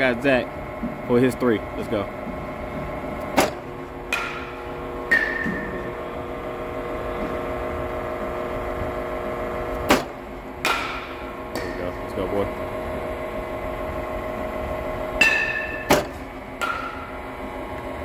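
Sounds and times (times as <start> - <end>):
pitching machine hum: 0.0 - 18.0
bat cracking ball: 3.4 - 5.9, 9.8 - 11.8, 15.2 - 17.2.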